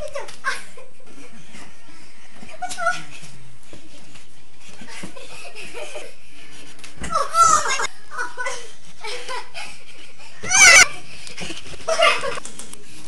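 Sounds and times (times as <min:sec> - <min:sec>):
children laughing and shrieking: 0:07.0 - 0:09.7, 0:10.3 - 0:11.0.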